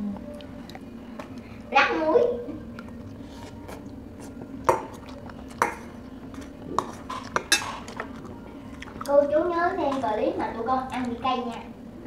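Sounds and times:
metal spoon clinking on bowl: 6.8s - 7.8s.

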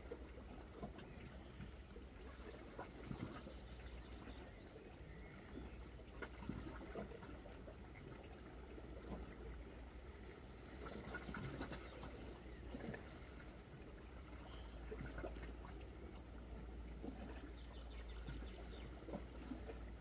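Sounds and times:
sea lapping against rocky shore: 0.0s - 20.0s
water splashes and trickles: 0.0s - 20.0s.

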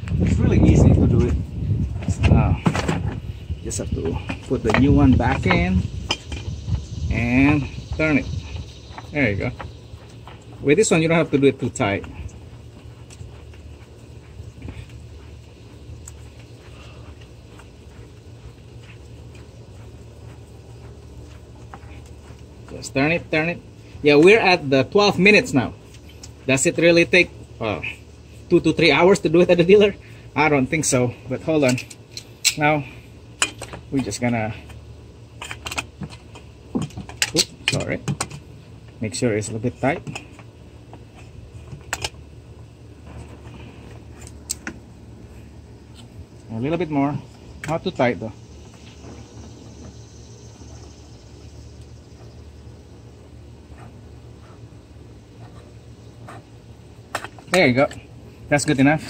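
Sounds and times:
steady low hum: 0.0s - 59.0s
pliers clicking on oil filter: 31.6s - 32.6s
oil filter scraping and clicking: 33.4s - 39.0s, 39.9s - 42.3s, 43.0s - 44.8s, 45.8s - 46.5s, 55.3s - 58.1s.

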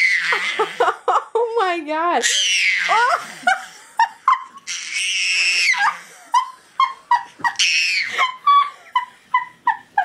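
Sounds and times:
baby shrieking: 0.0s - 0.8s, 2.2s - 3.3s, 4.6s - 6.1s, 7.4s - 8.4s
baby yelping: 0.0s - 0.8s, 2.2s - 3.3s, 4.6s - 6.1s, 7.4s - 8.4s.

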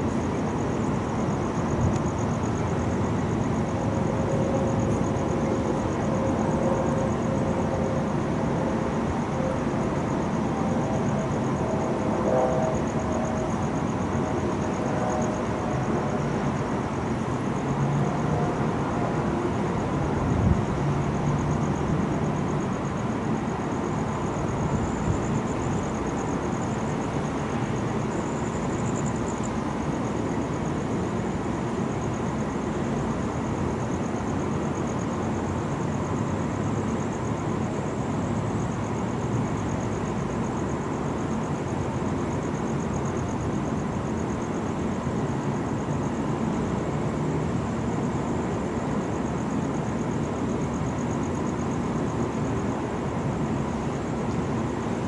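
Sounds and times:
city traffic noise: 0.0s - 55.0s
high pulsing buzz: 1.8s - 16.6s.

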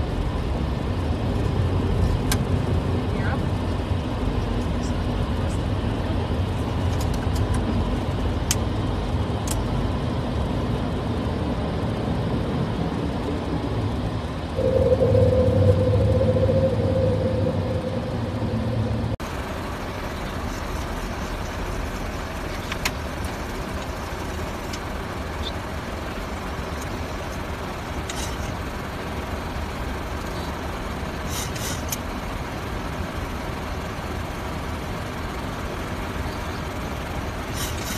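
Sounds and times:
aircraft cockpit rumble: 0.0s - 37.9s
rush of air in flight: 0.4s - 22.8s
humming tone: 14.5s - 19.2s.

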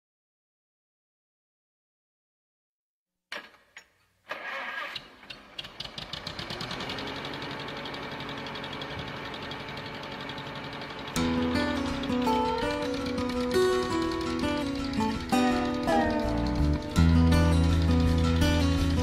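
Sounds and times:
engine cranking and idling: 4.2s - 19.0s.

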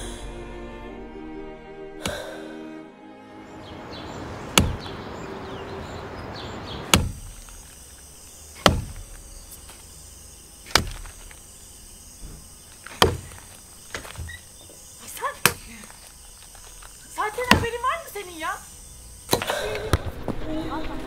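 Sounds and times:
steady hiss: 6.8s - 21.0s.

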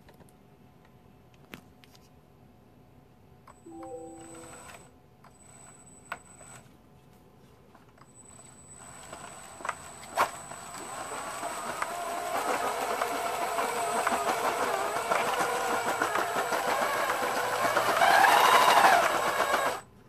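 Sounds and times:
rapid plastic track clatter: 9.0s - 19.9s
electric motor running: 10.0s - 19.8s.

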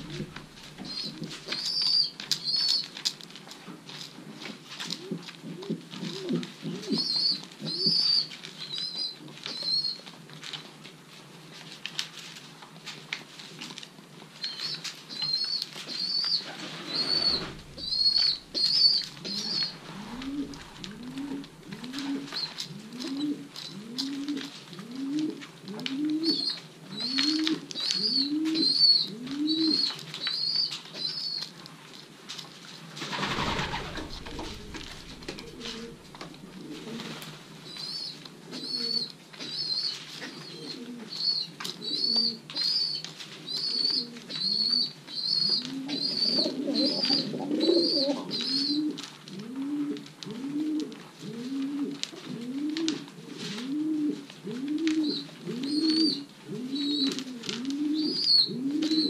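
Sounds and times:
pigeons cooing: 0.0s - 2.9s, 4.9s - 9.9s, 15.3s - 30.6s, 33.1s - 59.0s
high repeated chirping call: 16.1s - 19.8s
brief rushing noise: 16.4s - 21.1s, 33.1s - 36.5s.

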